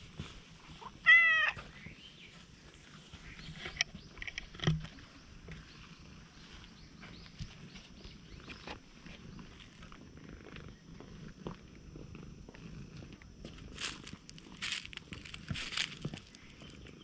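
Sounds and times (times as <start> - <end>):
faint cat call: 0.8 - 1.6
cat meowing: 1.0 - 1.6.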